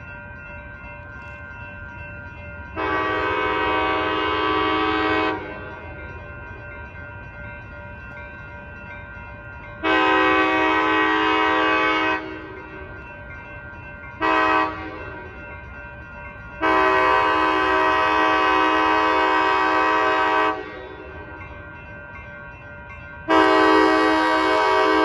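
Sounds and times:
locomotive air horn blasts: 0:02.8 - 0:05.5, 0:09.8 - 0:12.5, 0:14.2 - 0:15.0, 0:16.6 - 0:21.0, 0:23.3 - 0:25.0.

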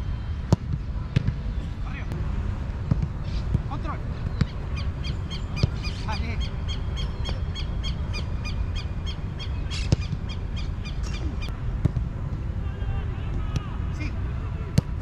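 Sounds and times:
steady low rumble: 0:00.0 - 0:15.0
football thuds: 0:00.5 - 0:01.4, 0:02.8 - 0:04.6, 0:11.8 - 0:12.1.

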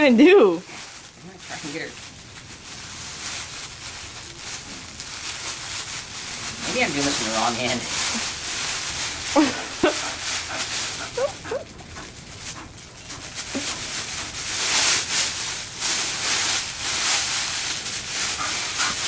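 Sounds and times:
fabric rustling: 0:00.3 - 0:19.0
dog whining: 0:10.9 - 0:11.8.

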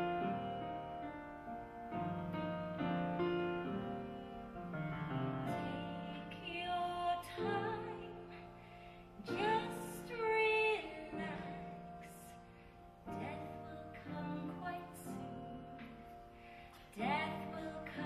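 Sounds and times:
piano accompaniment: 0:00.0 - 0:18.0
woman singing: 0:05.5 - 0:08.4, 0:09.2 - 0:12.4, 0:13.1 - 0:16.0, 0:16.9 - 0:18.0.

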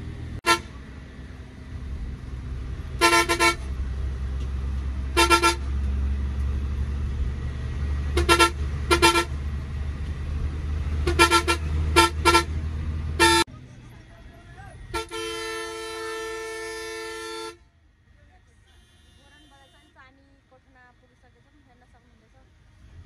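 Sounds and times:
engine humming: 0:00.0 - 0:23.0
vehicle horn beeping: 0:00.4 - 0:00.8, 0:03.0 - 0:03.7, 0:05.1 - 0:05.8, 0:08.1 - 0:09.4, 0:11.0 - 0:12.6, 0:13.2 - 0:13.5, 0:14.9 - 0:17.7, 0:18.6 - 0:20.2.

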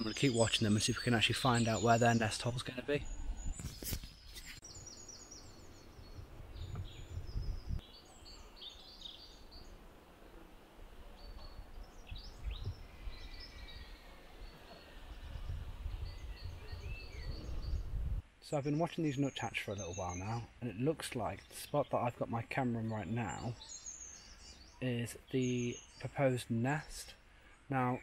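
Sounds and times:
birds singing and calling: 0:00.0 - 0:09.8, 0:11.2 - 0:28.0.

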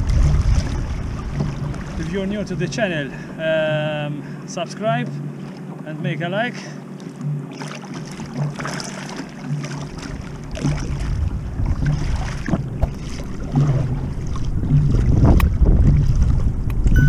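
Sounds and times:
wind rumbling on microphone: 0:00.0 - 0:04.0, 0:09.8 - 0:17.0
kayak paddle splashing: 0:00.0 - 0:17.0
water moving along hull: 0:00.0 - 0:17.0.

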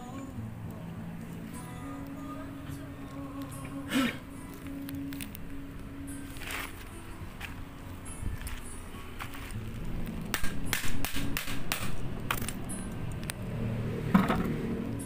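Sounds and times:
low steady hum: 0:00.0 - 0:15.0
metallic clanks and knocks: 0:14.1 - 0:14.6.

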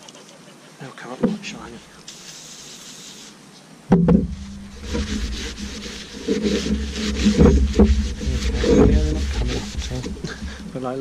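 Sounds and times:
knocks: 0:03.9 - 0:10.7
low rumble: 0:04.0 - 0:11.0
towel rubbing on metal: 0:04.0 - 0:11.0.

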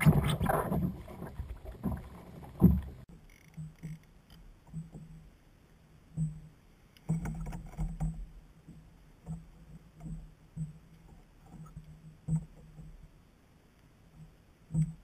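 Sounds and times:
waves slapping kayak hull: 0:00.0 - 0:03.1.

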